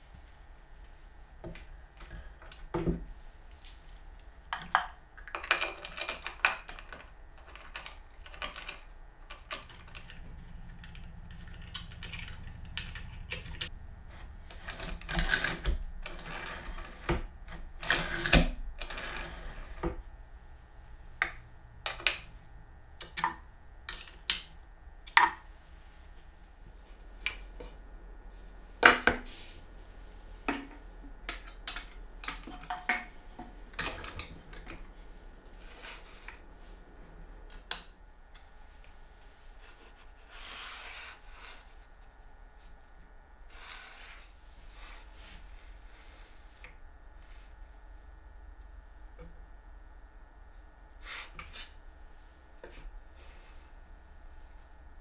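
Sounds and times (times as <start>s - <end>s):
wooden parts clicking and knocking: 4.5s - 13.7s.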